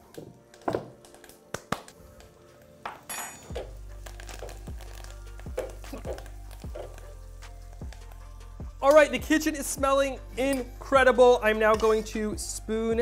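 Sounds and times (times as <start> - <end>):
music with thudding beat: 3.5 - 13.0.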